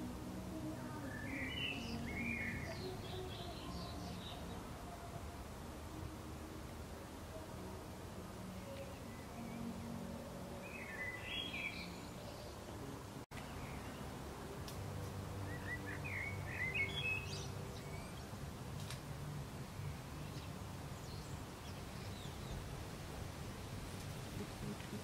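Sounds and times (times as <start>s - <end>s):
small birds chirping: 8.6s - 14.2s, 15.0s - 19.0s
low steady rumble: 11.7s - 25.0s.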